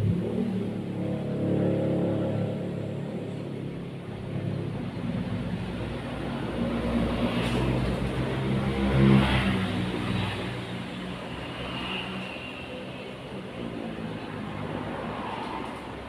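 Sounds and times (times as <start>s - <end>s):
vehicle engine passing by: 0.0s - 12.6s.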